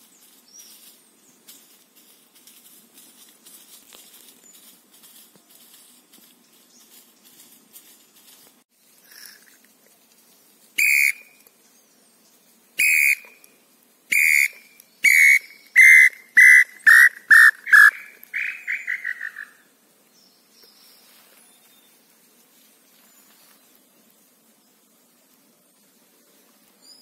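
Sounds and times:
wooden bird call whistle: 0:10.8 - 0:11.4, 0:12.8 - 0:13.5, 0:14.1 - 0:19.5.

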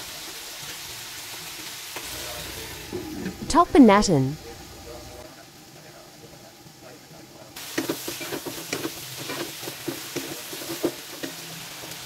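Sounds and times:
food sizzling in a wok: 0:00.0 - 0:03.7, 0:04.3 - 0:12.0
spatula scraping and tapping pan: 0:07.7 - 0:11.4.

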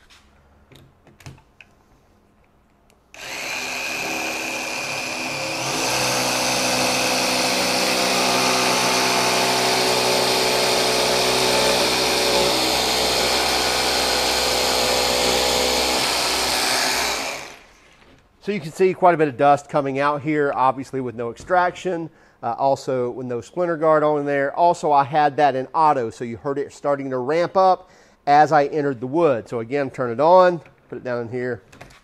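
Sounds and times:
jigsaw cutting plywood: 0:03.2 - 0:17.8.

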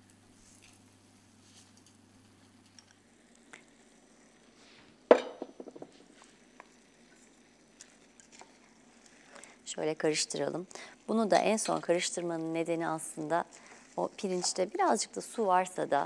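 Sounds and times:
rice rustling into a pot: 0:00.3 - 0:10.4, 0:11.2 - 0:15.4
kitchenware clanking on a pot: 0:05.1 - 0:05.8.

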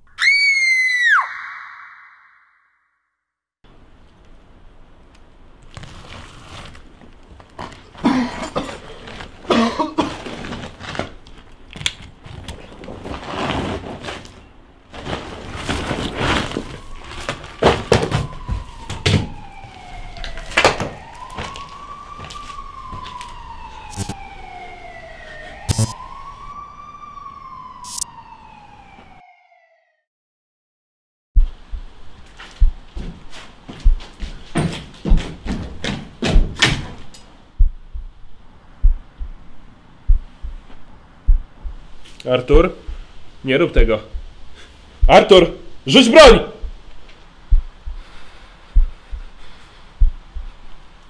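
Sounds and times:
police siren wailing: 0:16.5 - 0:30.1.

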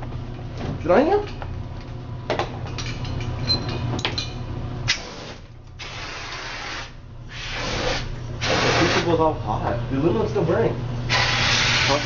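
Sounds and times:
fire extinguisher hissing: 0:05.0 - 0:09.1, 0:11.1 - 0:12.0.

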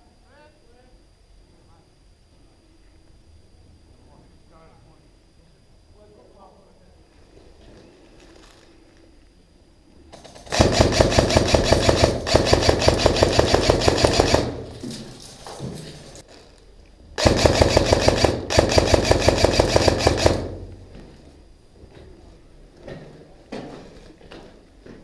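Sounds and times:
airsoft gun full-auto bursts: 0:10.2 - 0:14.7, 0:17.2 - 0:20.7.

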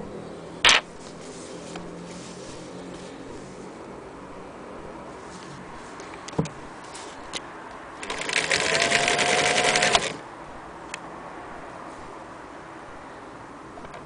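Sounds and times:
sewing machine running: 0:08.0 - 0:10.2.

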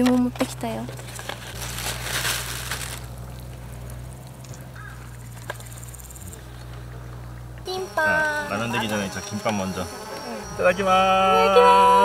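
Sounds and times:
faint high insect buzz: 0:07.6 - 0:12.0.

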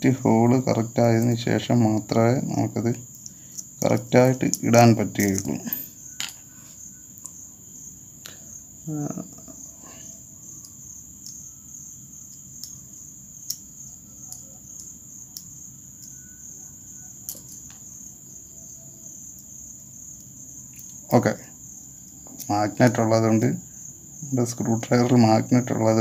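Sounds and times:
crickets chirring: 0:00.0 - 0:26.0
screwdriver tapping small parts: 0:03.2 - 0:06.4, 0:10.6 - 0:11.4, 0:13.4 - 0:16.2, 0:17.3 - 0:17.8
low voice hum: 0:08.8 - 0:10.0.

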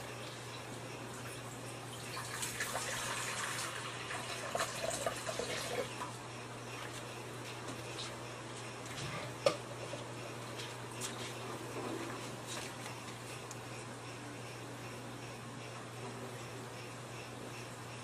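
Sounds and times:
water running into bowls: 0:01.9 - 0:06.0.

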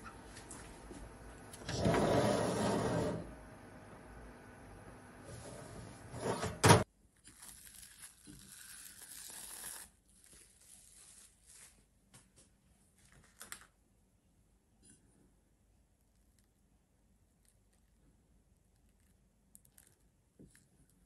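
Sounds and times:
oven fan humming: 0:00.0 - 0:06.8.

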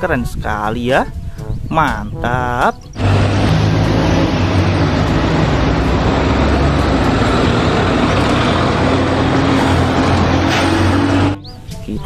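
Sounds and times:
road traffic noise: 0:02.8 - 0:11.9
bus engine running: 0:02.9 - 0:11.8.

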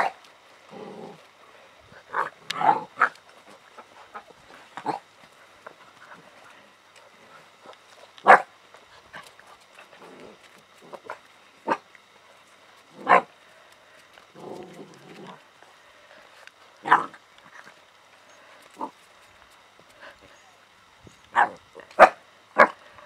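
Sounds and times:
puppies barking and yapping: 0:07.4 - 0:11.9.

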